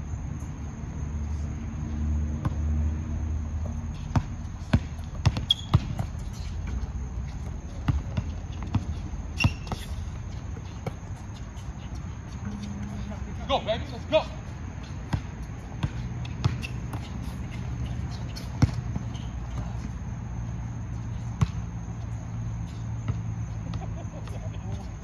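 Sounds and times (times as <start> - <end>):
basketball bouncing on hard court: 4.0 - 11.2, 14.8 - 20.0, 21.3 - 21.8.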